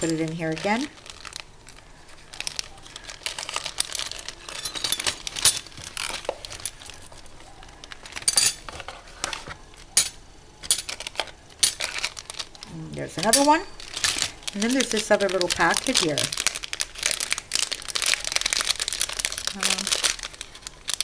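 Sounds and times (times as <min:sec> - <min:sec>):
plastic bag crinkling: 0:00.0 - 0:21.0
metal charms clinking: 0:03.5 - 0:06.9, 0:13.2 - 0:16.3.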